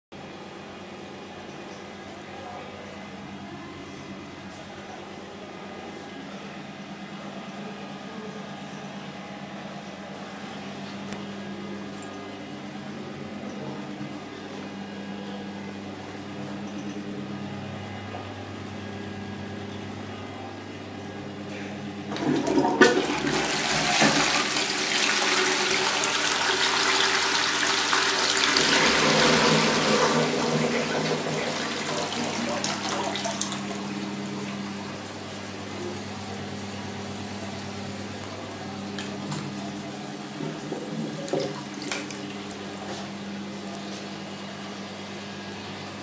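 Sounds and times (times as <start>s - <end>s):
toilet flushing: 22.1s - 38.1s, 38.9s - 43.0s.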